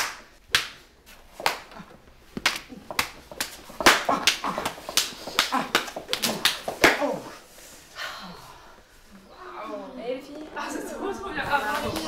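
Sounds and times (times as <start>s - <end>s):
crop strokes and slaps: 0.0s - 7.3s.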